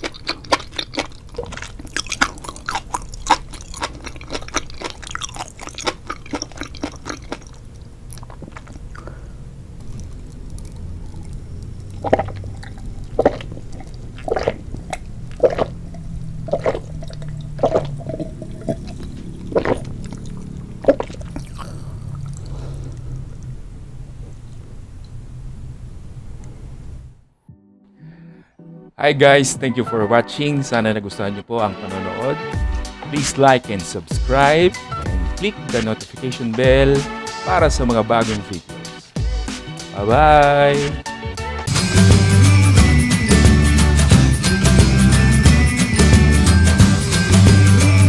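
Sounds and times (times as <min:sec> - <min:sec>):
gulping a drink: 0:00.0 - 0:23.5
wet chewing and mouth clicks: 0:00.0 - 0:23.6.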